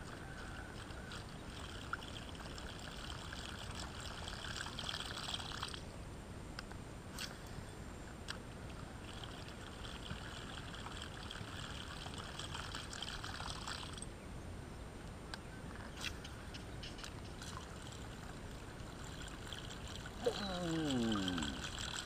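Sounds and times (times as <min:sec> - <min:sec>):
water trickling and dripping: 0:00.0 - 0:05.8, 0:08.7 - 0:14.1, 0:16.0 - 0:22.0.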